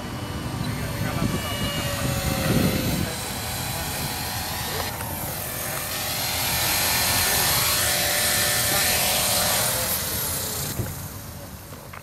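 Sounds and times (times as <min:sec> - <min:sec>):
toy helicopter rotors whirring: 0:00.0 - 0:12.0.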